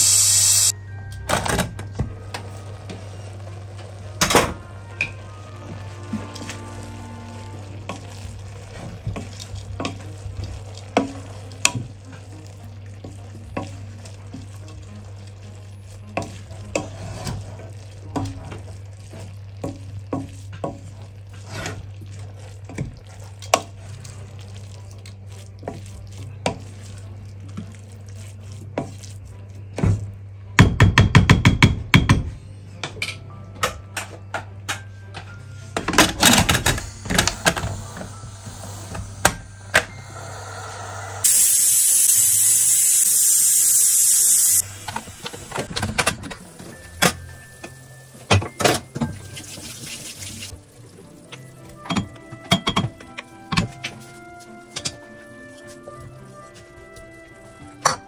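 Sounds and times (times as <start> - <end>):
light sizzle in pot: 0.0 - 1.2, 2.1 - 30.0, 36.3 - 58.0
spoon tapping and scraping pot: 51.8 - 54.0.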